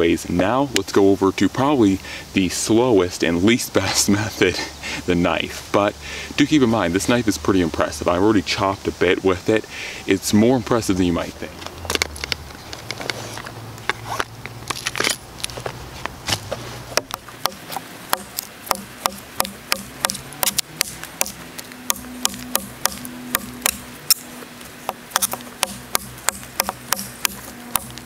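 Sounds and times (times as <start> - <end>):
knife chopping into log: 16.3 - 24.3, 24.9 - 28.0.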